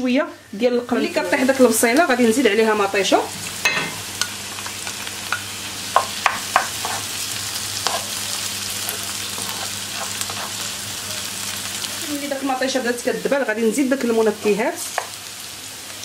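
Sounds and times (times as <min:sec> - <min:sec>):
food sizzling in a frying pan: 0:00.0 - 0:16.0
wooden spoon knocking on pan: 0:05.9 - 0:07.0.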